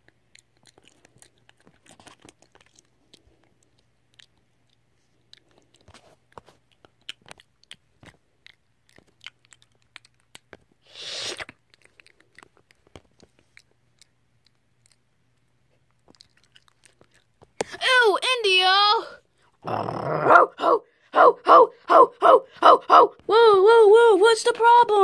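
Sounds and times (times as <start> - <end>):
dog crunching food: 0.0 - 10.8, 11.4 - 17.6.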